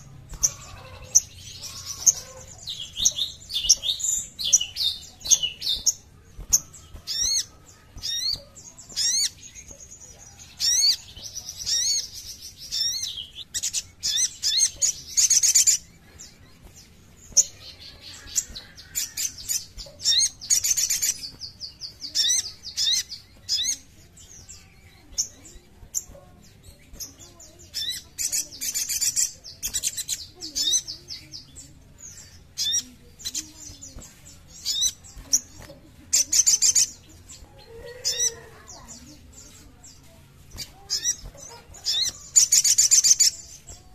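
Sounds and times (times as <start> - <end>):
bird chirping and trilling: 0.0 - 43.9.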